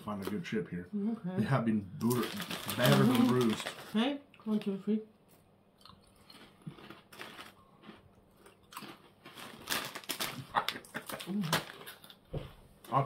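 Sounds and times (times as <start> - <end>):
potato chips crunching: 2.0 - 4.0, 5.8 - 12.2.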